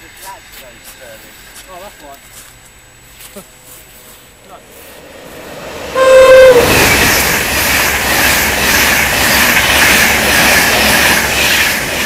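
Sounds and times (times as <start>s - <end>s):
train rushing past: 3.8s - 12.0s
train horn blast: 5.9s - 7.1s.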